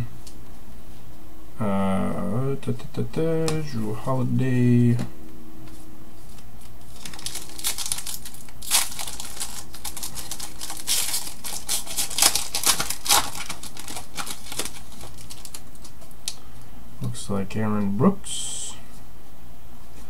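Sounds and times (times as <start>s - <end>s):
cards being handled: 5.7s - 16.1s
plastic wrapper crinkling and tearing: 6.6s - 16.4s.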